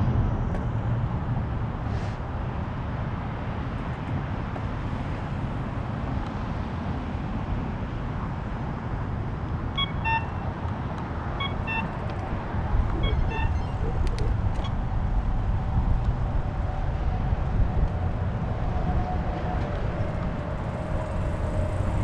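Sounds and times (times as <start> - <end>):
wind rush while cycling: 10.6 - 22.0
short pitched chirps: 12.9 - 14.3
tyres rolling on pavement: 19.9 - 22.0.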